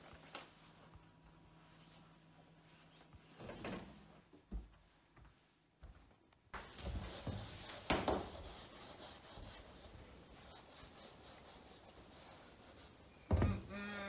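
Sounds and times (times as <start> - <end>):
hands rubbing an object: 6.6 - 14.0.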